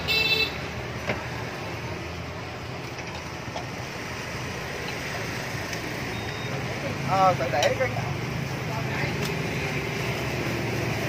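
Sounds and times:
horn toot: 0.0s - 0.6s
motorbike traffic: 0.0s - 11.0s.

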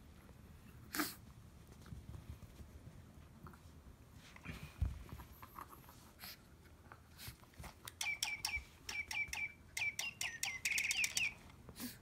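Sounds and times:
toy bird electronic chirping: 8.0s - 11.4s.

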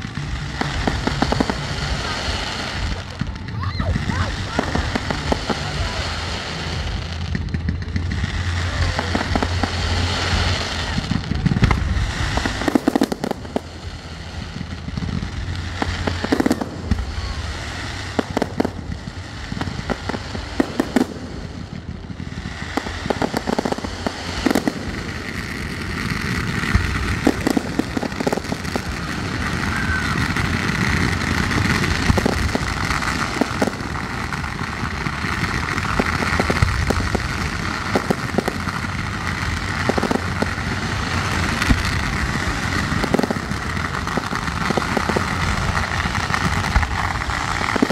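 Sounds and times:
fireworks bangs and crackling: 0.0s - 47.9s.

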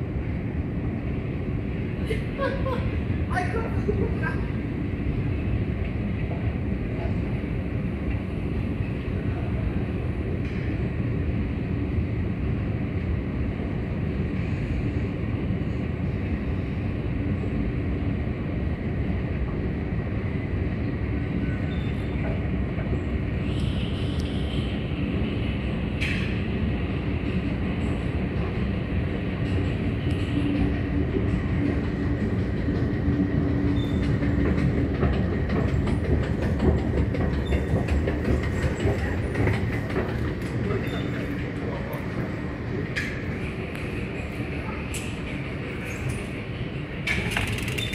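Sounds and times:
escalator rumble and hum: 0.0s - 47.9s
escalator steps clicking: 29.5s - 42.3s, 47.1s - 47.9s
sharp squeak: 47.4s - 47.9s.

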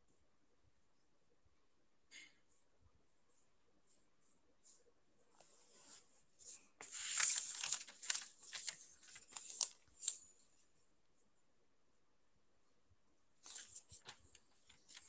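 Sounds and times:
rustling and crinkling: 3.9s - 10.4s, 13.4s - 15.0s.

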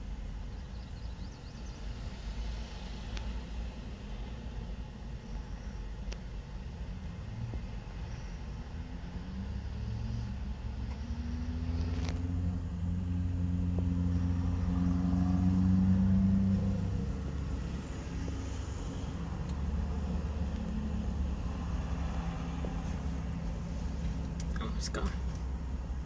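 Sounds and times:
vehicle engine passing by: 8.8s - 26.0s.

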